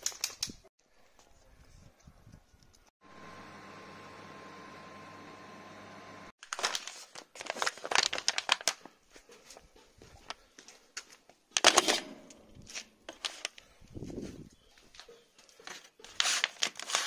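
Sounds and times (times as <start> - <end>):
foil tray crinkling: 6.4 - 9.0, 15.6 - 17.0.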